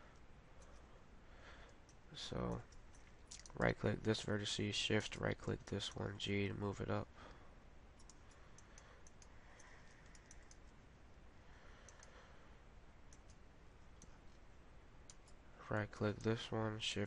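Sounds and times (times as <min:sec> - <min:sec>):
low microphone hiss: 0:00.0 - 0:17.0
mouse and keyboard clicks: 0:08.0 - 0:10.8, 0:13.1 - 0:14.4, 0:15.0 - 0:15.4.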